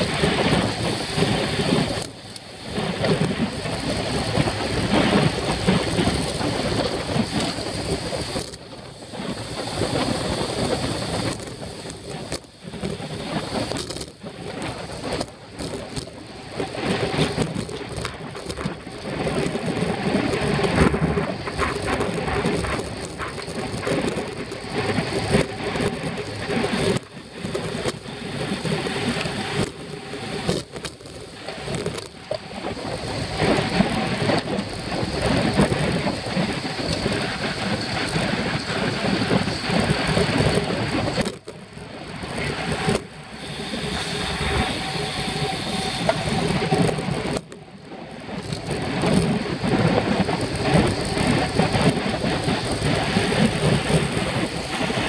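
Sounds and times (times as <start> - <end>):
rolling road noise: 0.0 - 55.0
wind buffeting microphone: 0.0 - 55.0.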